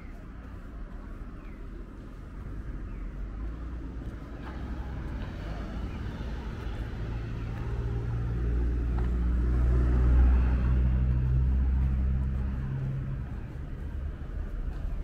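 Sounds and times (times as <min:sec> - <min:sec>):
car engine humming: 0:00.0 - 0:15.0.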